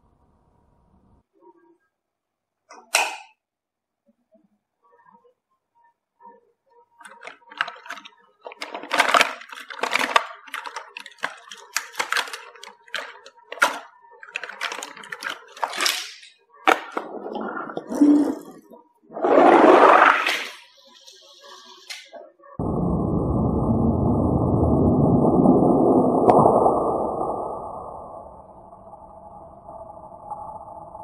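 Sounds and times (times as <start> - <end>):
plastic toy cars clattering: 7.0 - 17.1.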